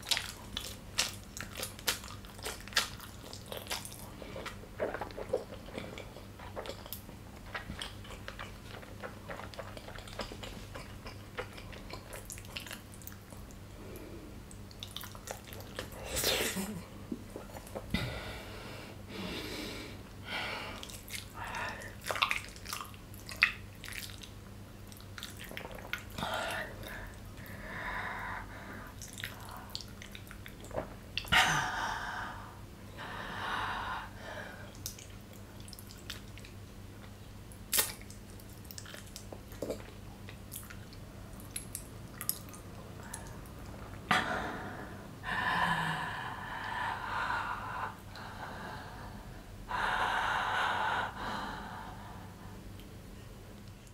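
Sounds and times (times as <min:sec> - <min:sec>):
mouth chewing with wet clicks: 0:00.0 - 0:13.6, 0:14.5 - 0:16.0, 0:20.8 - 0:26.2, 0:29.0 - 0:31.3, 0:34.7 - 0:44.0.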